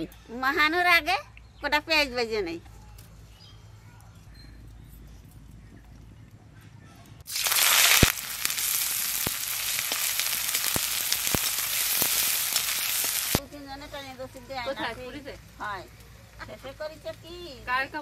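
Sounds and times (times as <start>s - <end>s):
onions sizzling in hot oil: 7.3s - 13.4s.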